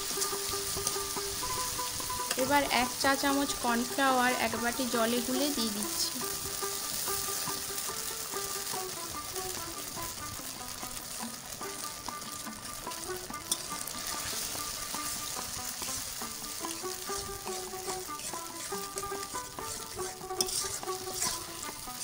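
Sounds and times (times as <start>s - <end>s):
sauce sizzling in a metal pan: 0.0s - 22.0s
soft background music: 0.0s - 22.0s
spatula scraping: 13.5s - 22.0s.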